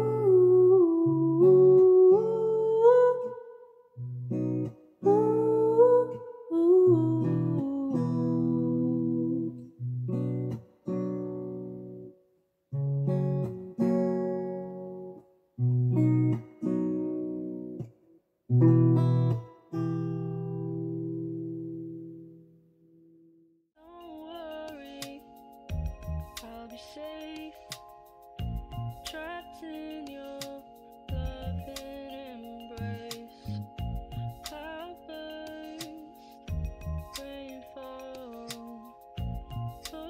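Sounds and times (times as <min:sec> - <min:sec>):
person singing: 0:00.0 - 0:03.8, 0:05.0 - 0:09.6, 0:23.8 - 0:28.0, 0:29.0 - 0:40.0
acoustic guitar chords: 0:00.0 - 0:40.0.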